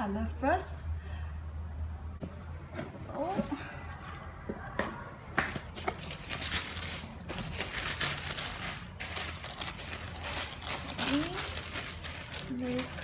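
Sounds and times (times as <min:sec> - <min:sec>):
tissue paper rustling and crinkling: 0:05.7 - 0:13.0.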